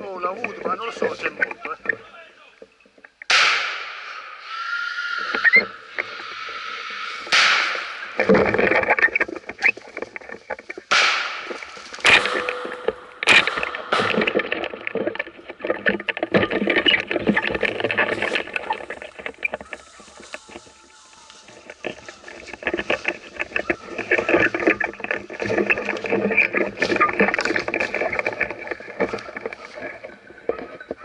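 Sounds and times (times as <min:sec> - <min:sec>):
branches rustling and scraping: 0:00.0 - 0:31.0
footsteps crunching through dry leaves: 0:09.5 - 0:12.9, 0:18.0 - 0:27.5.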